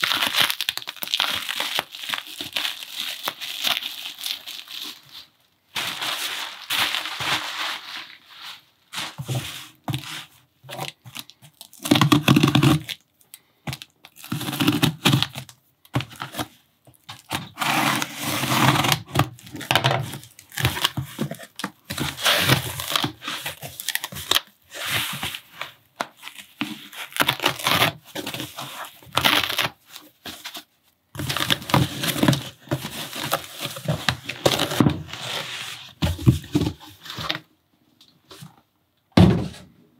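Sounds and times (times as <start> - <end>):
packing tape ripping off cardboard: 0.0 - 5.0, 10.8 - 13.0, 14.1 - 15.5, 16.1 - 30.1.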